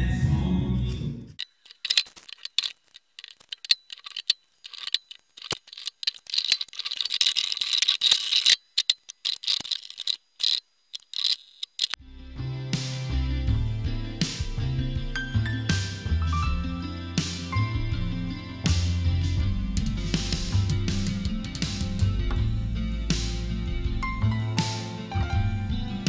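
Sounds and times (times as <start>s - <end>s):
wooden blocks and clamp clicking: 1.4s - 12.0s.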